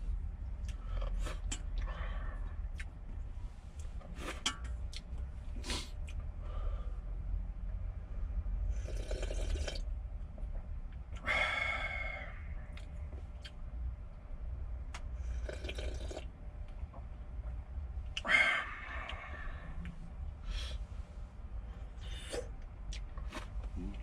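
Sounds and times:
low hum: 0:00.0 - 0:24.0
broth slurping and gulping: 0:08.7 - 0:09.9, 0:15.3 - 0:16.3
loud breathy sounds: 0:11.2 - 0:12.8, 0:18.2 - 0:22.5.

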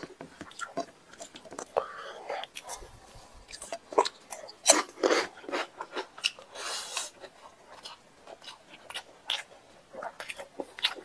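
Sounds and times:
person chewing: 0:00.0 - 0:11.0.

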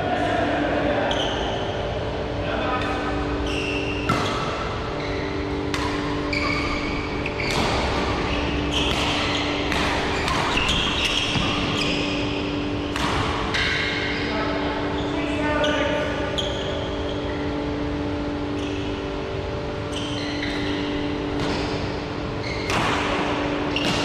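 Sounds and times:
steady low hum: 0:00.0 - 0:24.0
shoes squeaking on court: 0:03.4 - 0:12.6, 0:19.8 - 0:22.8
racket striking shuttlecock: 0:05.6 - 0:06.8, 0:07.4 - 0:11.8, 0:12.8 - 0:14.0, 0:22.6 - 0:24.0.

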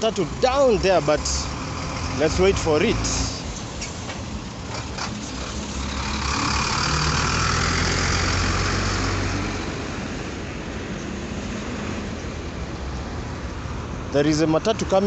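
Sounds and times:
steady traffic noise: 0:00.0 - 0:15.0
vehicle passing close by: 0:04.5 - 0:13.4.

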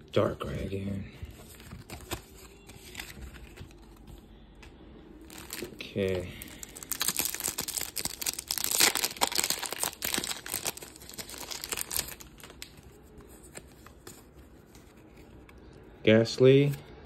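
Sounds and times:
foil pack crinkling and tearing: 0:05.3 - 0:12.8.

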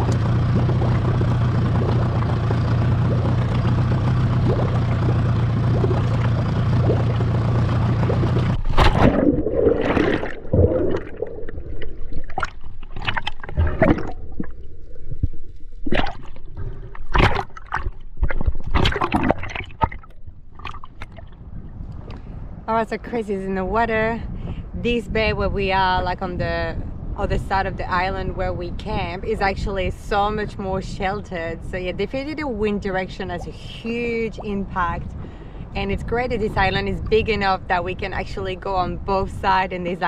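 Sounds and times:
outboard motor running: 0:00.0 - 0:09.2, 0:25.4 - 0:40.0
splashes and bubbles: 0:00.0 - 0:22.2
water sloshing and gurgling: 0:00.0 - 0:22.6, 0:23.8 - 0:40.0.

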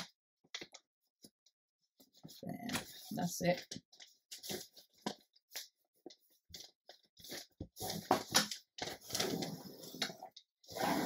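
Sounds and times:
paper bag crinkling and rustling: 0:06.5 - 0:10.4.

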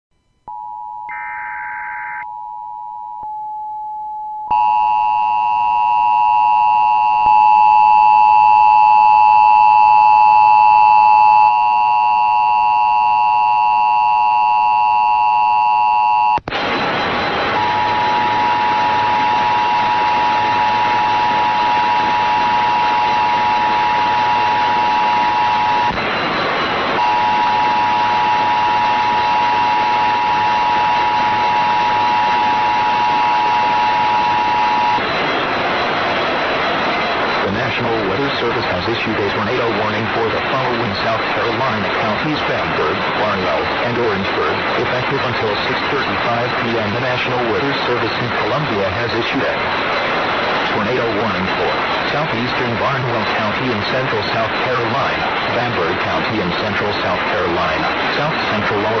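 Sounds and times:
two-tone alarm: 0:00.4 - 0:59.0
noise hiss: 0:16.4 - 0:59.0.

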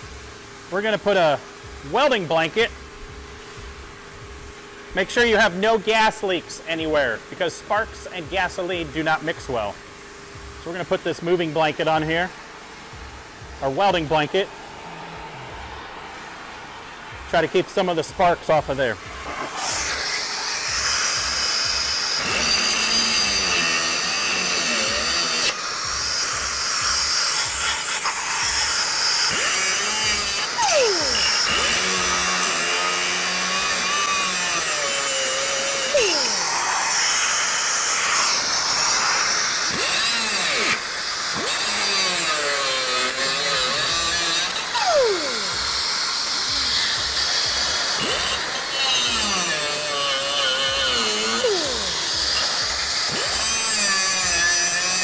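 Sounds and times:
grinder disc spinning down: 0:12.3 - 0:55.0
cutoff wheel grinding steel: 0:17.2 - 0:55.0.

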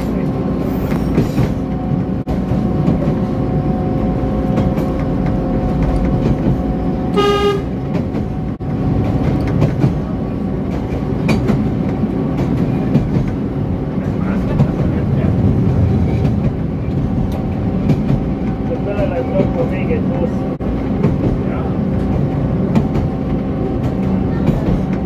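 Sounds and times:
locomotive running: 0:00.0 - 0:25.0
short horn blast: 0:07.1 - 0:07.8.

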